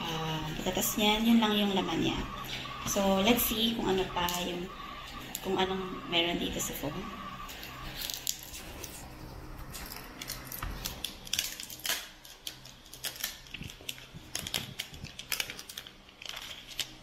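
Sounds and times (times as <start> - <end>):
plastic wrapping crinkling: 7.8 - 17.0.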